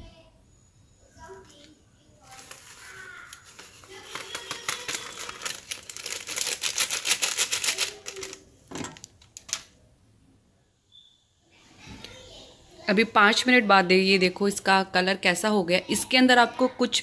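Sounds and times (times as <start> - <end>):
plastic packet crinkling: 2.2 - 9.7.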